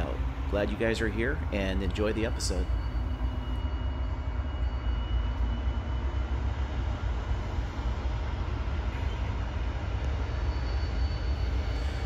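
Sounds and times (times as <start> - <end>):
diesel engine idling: 0.0 - 3.6.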